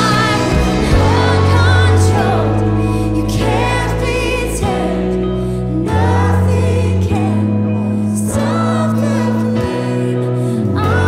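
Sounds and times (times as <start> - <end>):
low bass note: 0.0 - 8.4
band with drums guitar and keys: 0.0 - 11.0
woman singing lead: 0.0 - 11.0.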